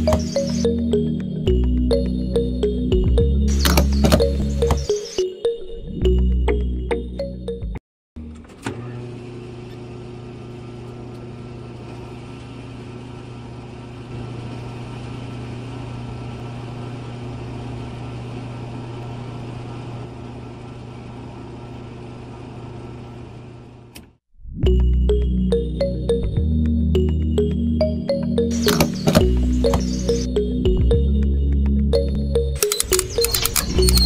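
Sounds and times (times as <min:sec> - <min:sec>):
single click: 0:32.6 - 0:34.0.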